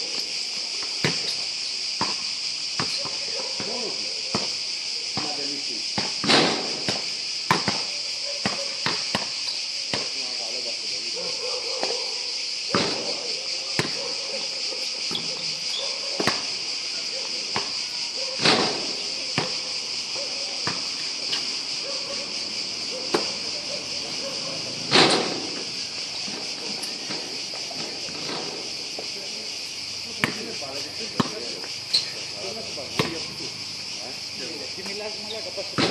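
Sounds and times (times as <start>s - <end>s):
insects chorus: 0.0s - 35.9s
basketball bouncing on court: 31.2s - 31.4s.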